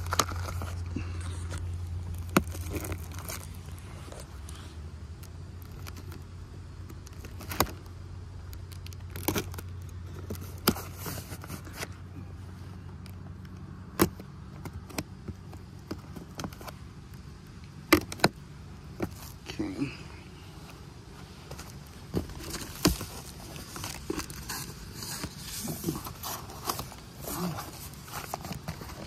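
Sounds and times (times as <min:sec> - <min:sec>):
cardboard box tearing: 0:22.1 - 0:29.0.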